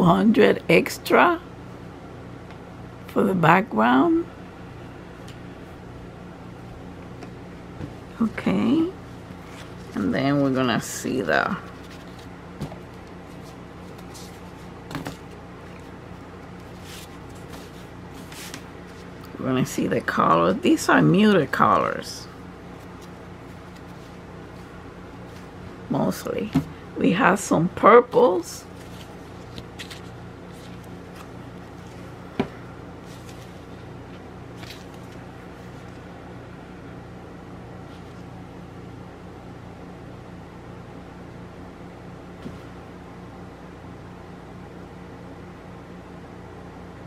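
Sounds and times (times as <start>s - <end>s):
steady low hum: 0.0s - 47.0s
cloth and packaging rustling: 11.5s - 19.2s, 28.2s - 36.0s
fabric rustling: 16.6s - 19.2s, 33.0s - 36.0s.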